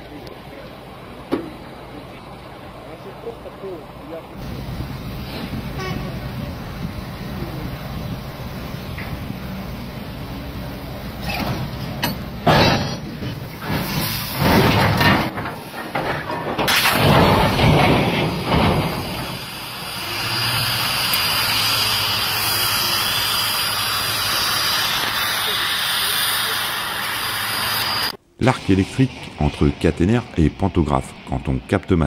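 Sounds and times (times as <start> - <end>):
wagon crashing and grinding: 11.2 - 19.9
steady hiss: 18.4 - 32.0.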